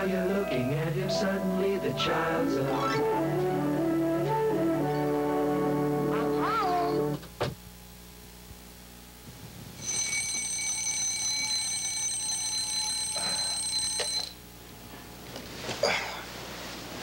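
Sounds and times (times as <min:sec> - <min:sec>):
alarm clock ringing: 0:09.8 - 0:14.4.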